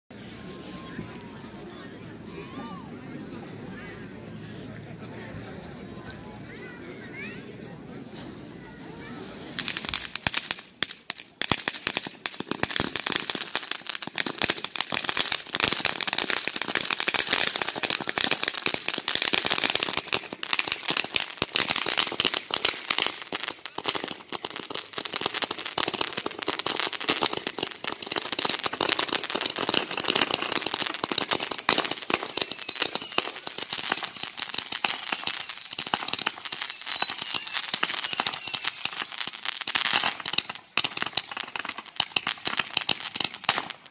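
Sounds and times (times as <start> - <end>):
fireworks crackling and popping: 0.1 - 2.0, 8.2 - 43.9
falling firework whistles: 31.1 - 40.2.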